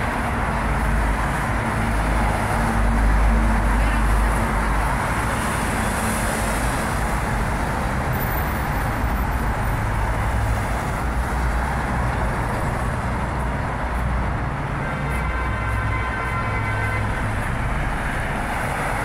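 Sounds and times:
road traffic rumble and hiss: 0.0 - 19.0.

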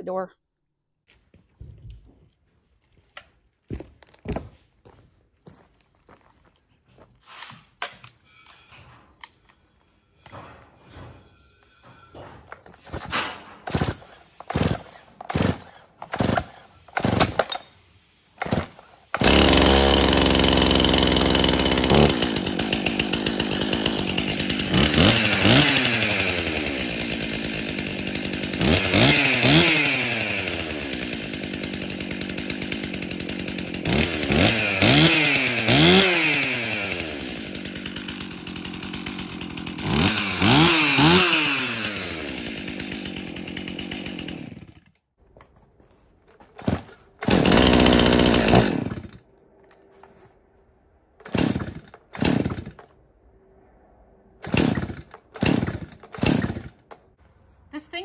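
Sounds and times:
starter cord pulls: 12.5 - 17.7, 18.4 - 23.0, 46.3 - 50.2, 54.4 - 57.1
chainsaw engine revving and idling: 13.6 - 17.6, 18.4 - 44.9, 46.6 - 49.2, 51.2 - 52.9, 54.4 - 56.9.

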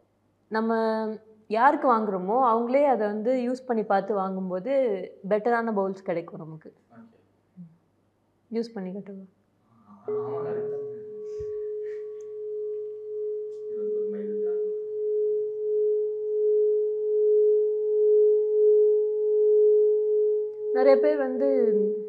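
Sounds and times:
singing bowl ringing tone: 10.0 - 22.0.

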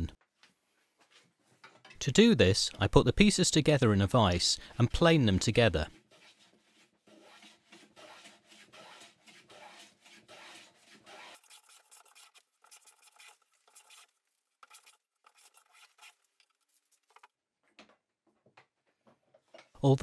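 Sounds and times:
bench plane shaving wood: 5.8 - 16.2.

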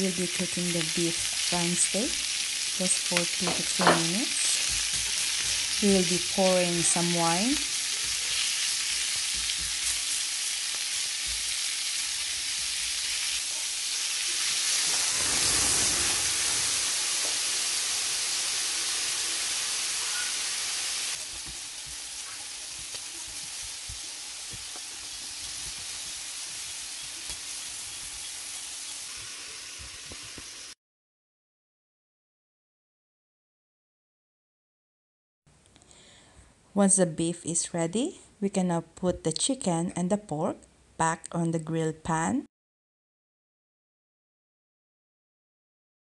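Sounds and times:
meat sizzling in a pan: 0.0 - 30.8.

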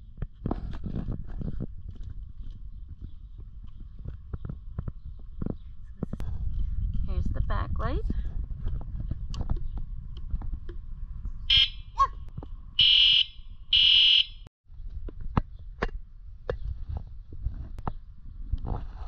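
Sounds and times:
electronic horn beeping: 11.5 - 11.8, 12.8 - 14.5.

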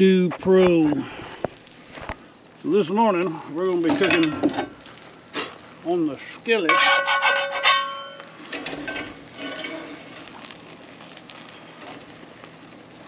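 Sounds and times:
skillet and spatula clanking: 6.6 - 10.0.

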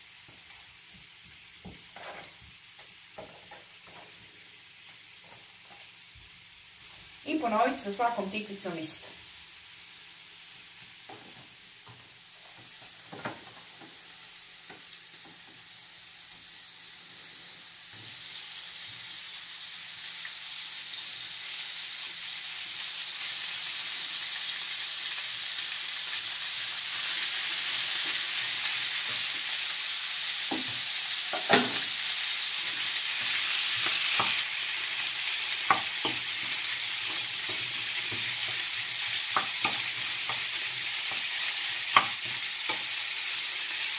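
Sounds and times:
meat sizzling in frying pan: 0.0 - 43.9
spoon knocking against pan: 35.7 - 36.2, 39.3 - 40.4, 41.9 - 42.8.

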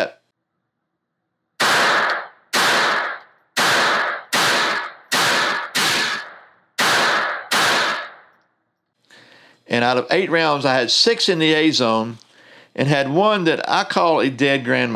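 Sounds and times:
pistol shots indoors: 1.6 - 8.4.

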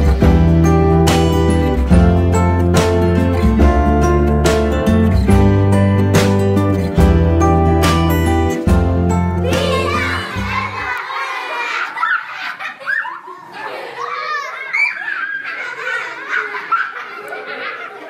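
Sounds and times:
acoustic guitar music: 0.0 - 10.9
young child laughing and babbling: 9.4 - 12.0.

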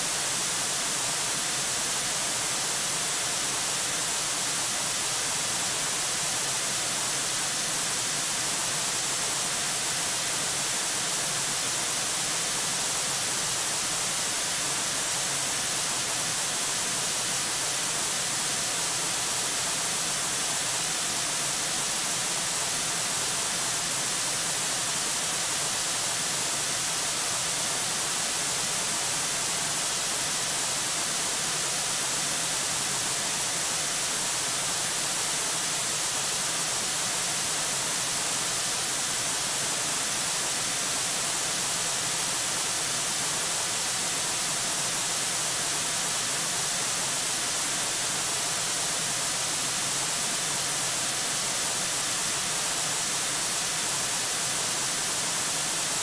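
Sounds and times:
microphone static hiss: 0.0 - 56.0.

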